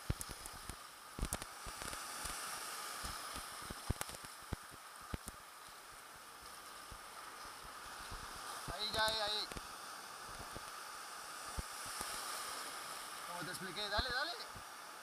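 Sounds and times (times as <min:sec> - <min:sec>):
small waves splashing: 0:00.0 - 0:15.0.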